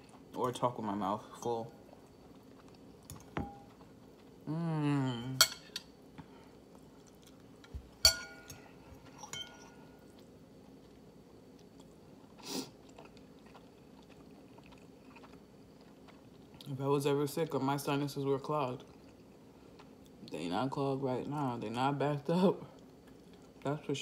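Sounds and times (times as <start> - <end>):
wavering hummed voice: 4.4 - 5.5
fork clinking on ceramic bowl: 8.0 - 8.6, 9.2 - 9.8.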